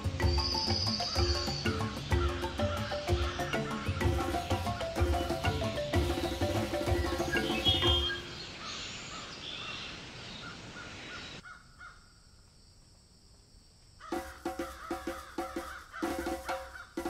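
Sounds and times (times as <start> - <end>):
background music: 0.0 - 8.3
music with percussion beat: 0.0 - 8.3, 14.1 - 17.0
harsh bird calls: 0.0 - 12.1, 14.0 - 17.0.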